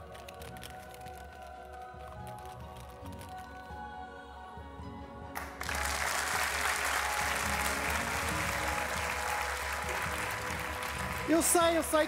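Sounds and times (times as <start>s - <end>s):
quiet background music: 0.0s - 12.0s
audience applauding: 5.4s - 12.0s.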